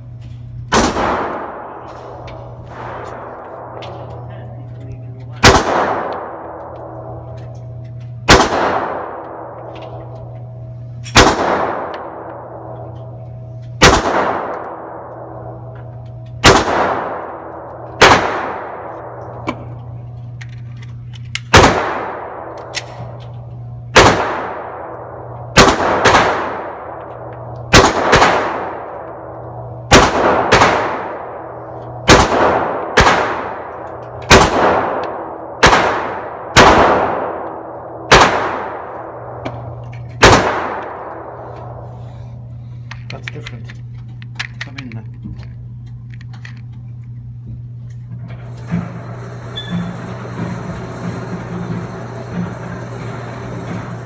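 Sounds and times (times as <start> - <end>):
pistol shots echoing indoors: 0.5 - 4.3, 5.4 - 20.0, 21.3 - 42.5.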